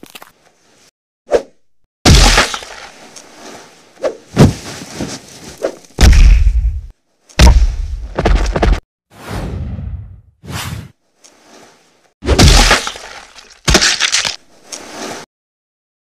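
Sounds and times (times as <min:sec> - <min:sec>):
fight hits and heavy thuds: 0:04.4 - 0:04.7, 0:06.0 - 0:08.8.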